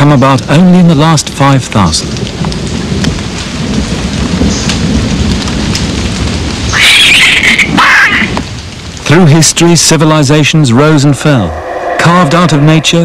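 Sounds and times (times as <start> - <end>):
rain: 0.0 - 13.0
rolling thunder: 2.1 - 9.0, 11.0 - 13.0
burst of high-pitched noise: 11.2 - 13.0.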